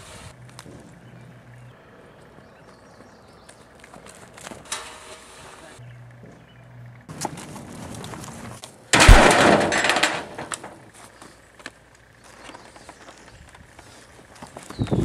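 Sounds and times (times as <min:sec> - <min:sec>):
metal drum lid crashing: 0:09.0 - 0:10.8.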